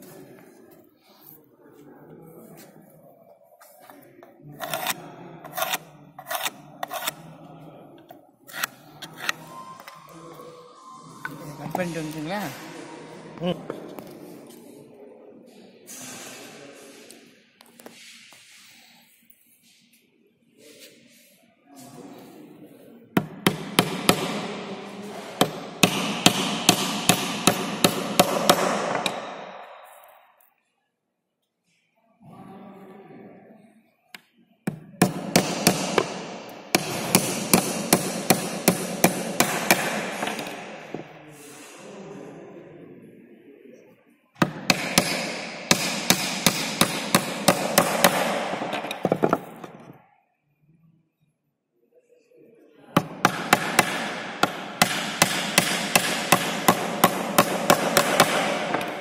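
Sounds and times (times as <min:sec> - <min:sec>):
hammer driving nails into plywood: 0:25.4 - 0:29.4, 0:34.7 - 0:40.6, 0:44.4 - 0:49.8, 0:53.0 - 0:59.0.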